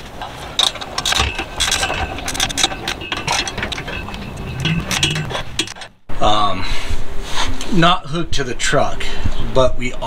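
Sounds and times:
tools clinking against steel: 0.2s - 6.0s.

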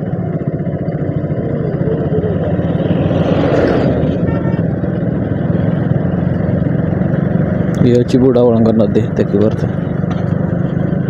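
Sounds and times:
bus passing: 0.0s - 7.7s
motorcycle engine running: 0.0s - 11.0s
road and wind noise: 0.0s - 11.0s.

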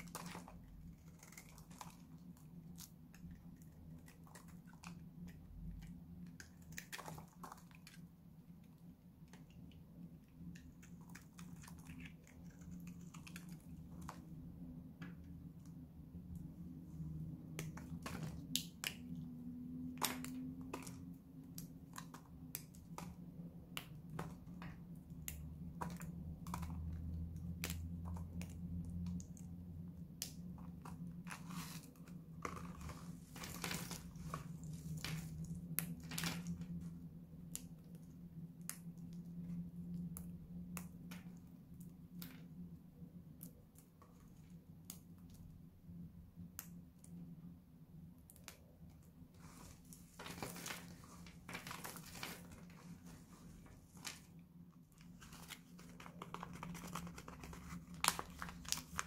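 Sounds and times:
dry soap flakes cracking: 0.0s - 8.0s, 10.4s - 14.3s, 17.6s - 29.5s, 30.1s - 36.8s, 55.0s - 59.0s.

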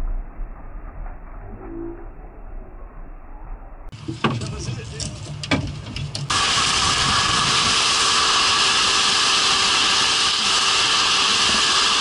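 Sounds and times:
outboard motor running: 4.0s - 12.0s.

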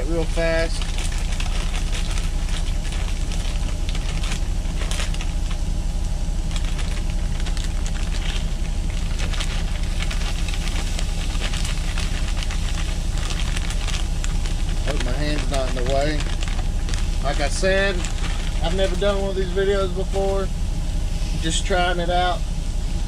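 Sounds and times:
frozen vegetables poured from bag: 0.0s - 5.6s, 6.4s - 20.1s
truck engine idling hum: 0.0s - 23.0s.

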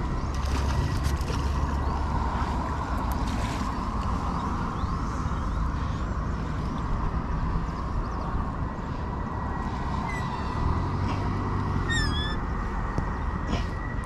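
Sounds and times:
low outdoor rumble: 0.0s - 14.0s
short high chirping call: 11.8s - 12.4s.

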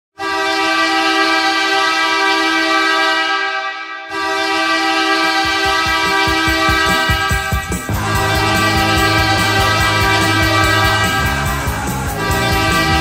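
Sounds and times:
goal horn blasts: 0.2s - 13.0s
drum beat: 5.4s - 13.0s.

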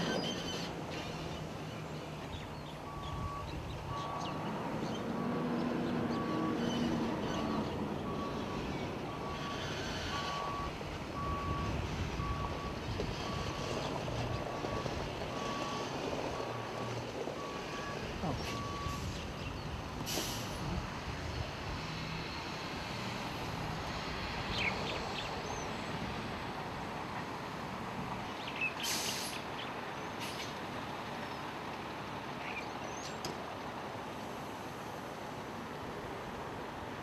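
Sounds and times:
outdoor noise: 0.0s - 37.0s
truck engine humming: 0.0s - 37.0s
short hissing bursts: 28.8s - 29.4s.

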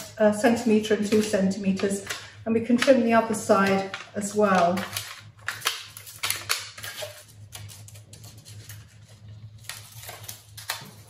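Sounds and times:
scissors snipping foil paper: 0.0s - 11.0s
foil crinkling: 3.6s - 11.0s.

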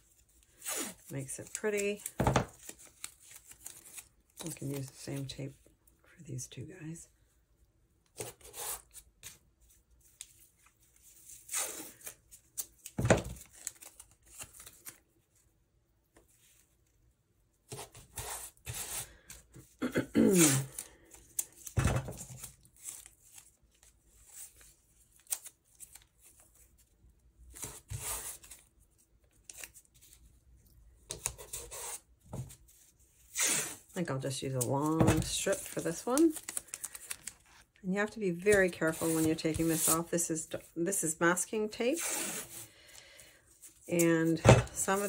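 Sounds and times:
masking tape ripping: 20.3s - 21.7s.

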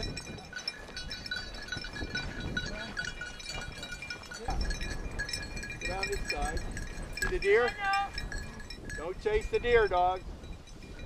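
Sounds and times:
dog collar bell jingling: 0.0s - 11.0s
wind rumbling on microphone: 0.0s - 11.0s.

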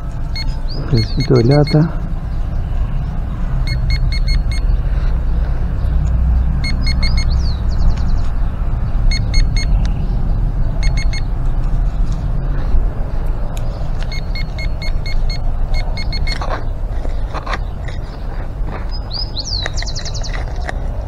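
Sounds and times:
rapid high beeps: 0.3s - 1.9s, 3.6s - 4.7s, 6.6s - 7.4s, 9.1s - 9.8s, 10.8s - 11.3s, 14.1s - 16.4s.

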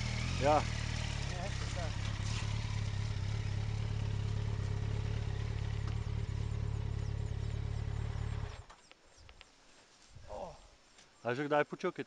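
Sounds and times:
motorcycle engine running: 0.0s - 8.7s.

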